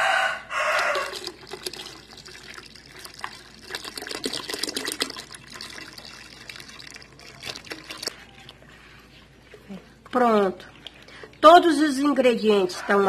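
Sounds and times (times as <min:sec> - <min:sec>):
milk pouring into a metal pot: 0:00.6 - 0:08.6.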